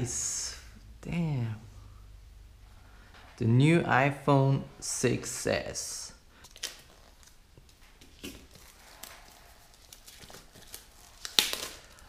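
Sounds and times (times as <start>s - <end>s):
cardboard and plastic rustling: 6.4s - 12.0s.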